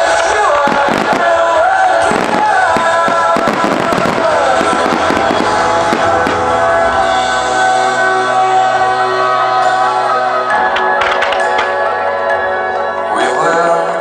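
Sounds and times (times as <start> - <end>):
fireworks bursting and crackling: 0.0 - 8.4, 10.6 - 11.9
loud display music: 0.0 - 14.0.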